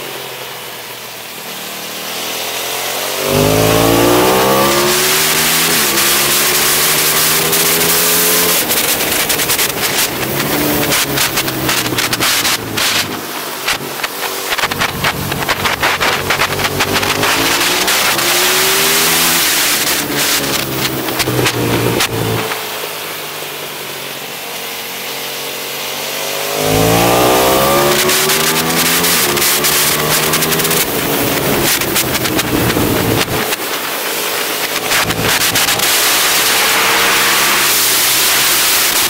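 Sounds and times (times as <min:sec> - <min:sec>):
motorcycle engine revving: 0:00.0 - 0:39.0
heavy wind noise: 0:08.9 - 0:22.6, 0:27.0 - 0:33.7.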